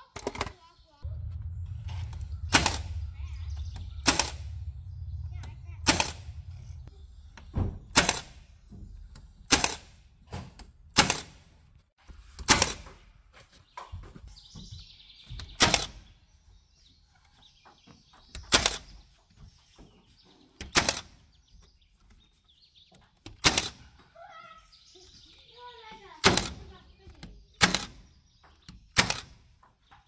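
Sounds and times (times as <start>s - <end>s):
nail gun firing: 2.5s - 2.9s, 4.0s - 4.5s, 5.8s - 6.3s, 7.6s - 8.5s, 9.4s - 11.5s, 12.4s - 12.9s, 15.6s - 16.0s, 18.5s - 18.9s, 20.6s - 21.2s, 23.4s - 23.9s, 26.2s - 26.7s, 27.6s - 28.1s, 28.9s - 29.4s.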